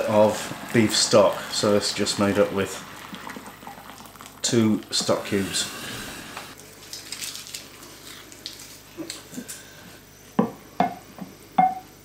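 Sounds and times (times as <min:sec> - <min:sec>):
sharp ringing knocks: 0:11.6 - 0:11.9.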